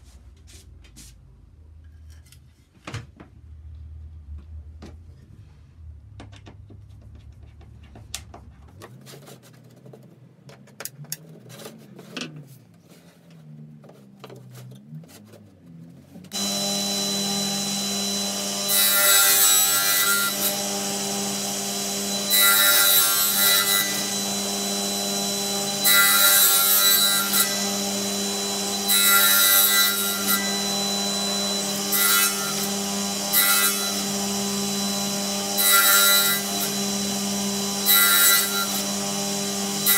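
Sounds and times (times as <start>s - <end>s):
table saw cutting wood: 16.3s - 39.9s
table saw running: 16.3s - 39.9s.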